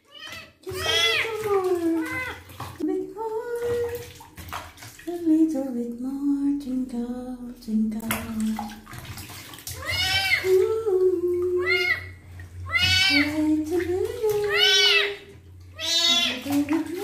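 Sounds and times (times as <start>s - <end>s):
water sloshing in a basin: 0.0s - 17.0s
kitten meowing: 15.8s - 16.4s.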